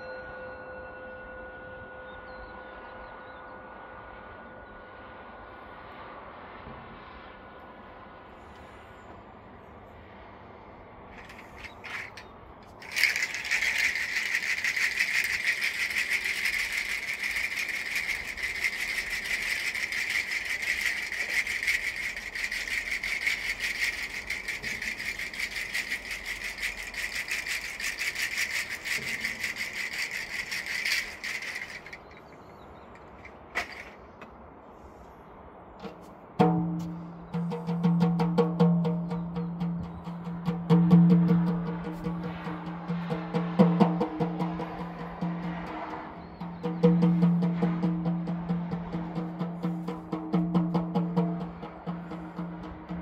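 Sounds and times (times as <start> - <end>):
wooden rattle shaken fast: 11.2 - 34.0, 41.4 - 53.0.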